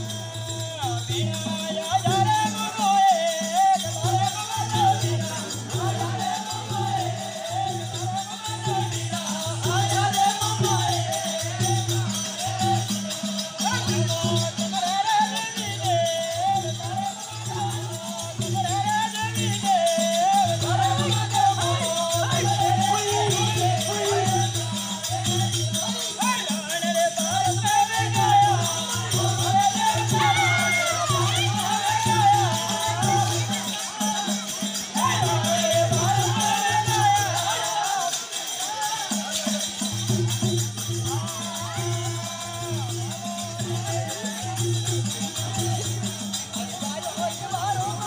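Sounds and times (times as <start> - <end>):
person singing folk melody: 0.0 - 39.8
jingling percussion: 0.0 - 48.0
steady drum beat: 0.0 - 48.0.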